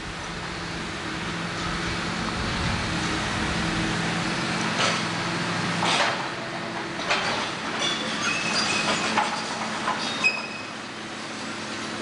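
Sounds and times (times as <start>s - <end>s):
excavator diesel engine running: 0.0s - 12.0s
high metallic squeals: 10.0s - 10.8s.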